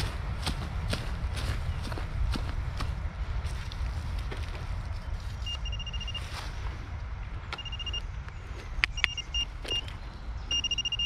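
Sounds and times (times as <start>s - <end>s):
metal detector pinpointer beeping: 5.4s - 6.3s, 7.5s - 8.1s, 8.8s - 11.0s.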